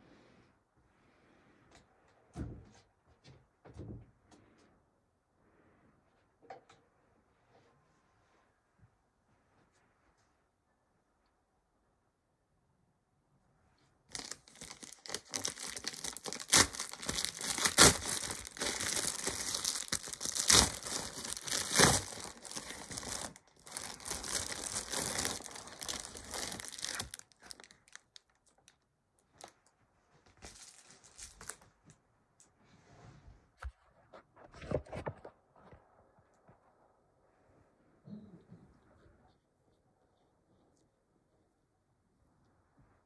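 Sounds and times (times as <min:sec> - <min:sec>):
soft rustle: 0:07.2 - 0:10.7, 0:29.3 - 0:37.0
plastic mailer crinkling and ripping: 0:14.1 - 0:28.6, 0:30.4 - 0:31.6.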